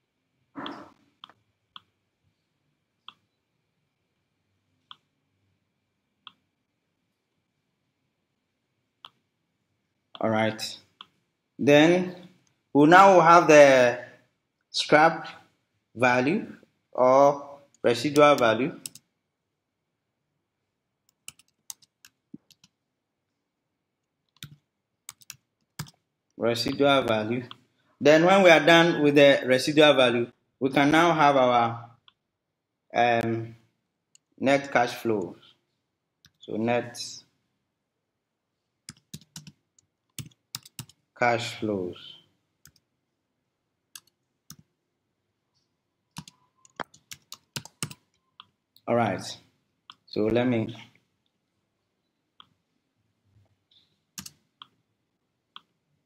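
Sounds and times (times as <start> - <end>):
faint keyboard typing: 0.6 - 2.0, 3.0 - 3.4, 4.8 - 5.2, 17.6 - 19.2, 21.0 - 22.8, 24.0 - 27.7, 38.8 - 41.1, 42.6 - 43.0, 43.9 - 44.7, 45.5 - 48.9, 53.4 - 54.8, 55.5 - 55.8.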